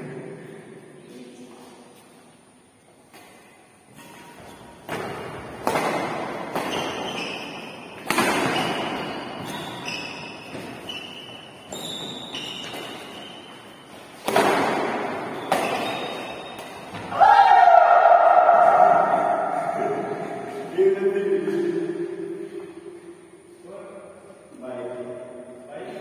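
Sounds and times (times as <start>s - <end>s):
rackets smacking shuttlecock: 3.1s - 17.1s.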